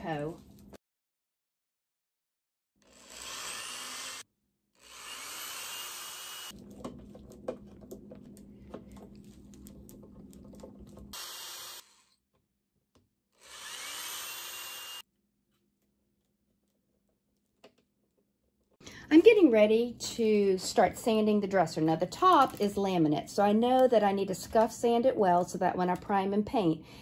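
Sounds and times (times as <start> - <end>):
corded drill motor whine: 2.8 - 6.6, 11.1 - 12.2, 13.4 - 15.0.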